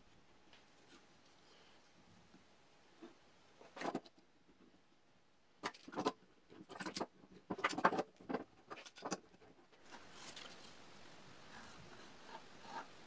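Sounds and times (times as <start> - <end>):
wooden pieces knocking: 5.6 - 9.4.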